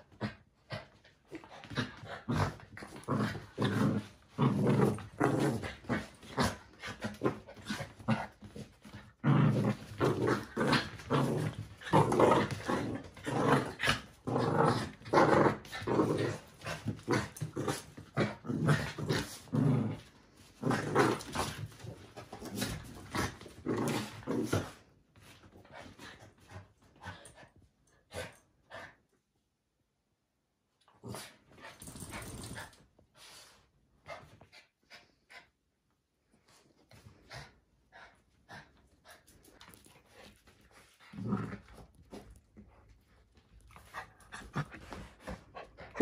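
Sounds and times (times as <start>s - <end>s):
small dogs growling: 0.1s - 21.6s, 22.4s - 24.8s, 41.0s - 42.3s.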